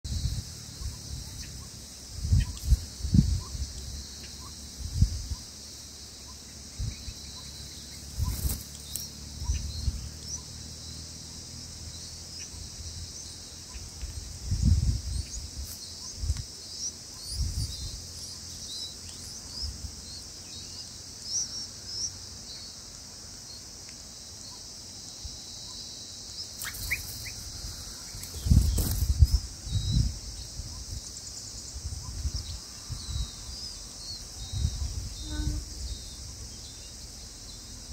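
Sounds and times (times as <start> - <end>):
insects buzzing: 0.0 - 37.9
bird chirps: 6.2 - 11.1, 25.5 - 37.9.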